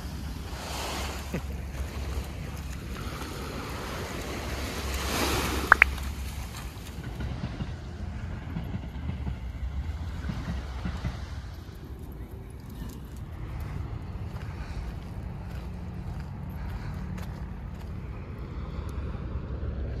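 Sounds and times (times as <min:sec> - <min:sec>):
small waves washing onto beach: 0:00.0 - 0:19.5.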